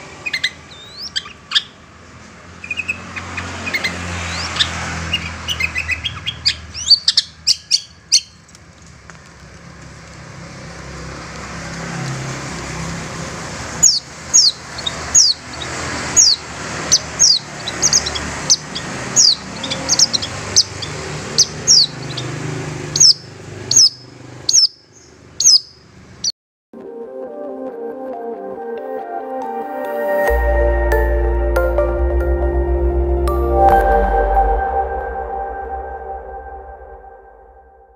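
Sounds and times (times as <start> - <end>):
shrike falling notes: 30.0 - 37.9.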